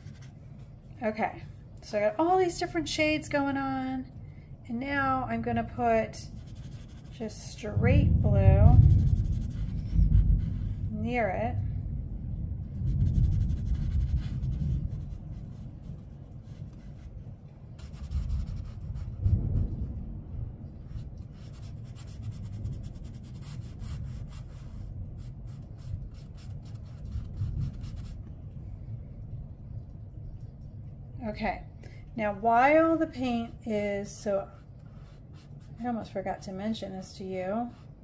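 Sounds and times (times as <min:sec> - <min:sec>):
paint brush scrubbing on paper: 0:00.0 - 0:00.4, 0:06.3 - 0:07.6, 0:08.7 - 0:10.8, 0:12.8 - 0:17.2, 0:17.8 - 0:19.7, 0:20.9 - 0:28.2, 0:34.2 - 0:36.1
low rumble: 0:00.0 - 0:38.0.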